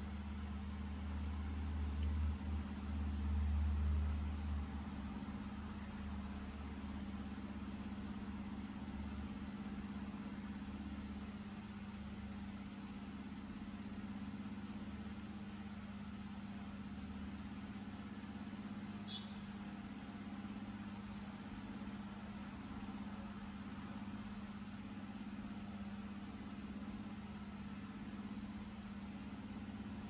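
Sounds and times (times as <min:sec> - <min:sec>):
low mechanical hum: 0:00.0 - 0:30.0.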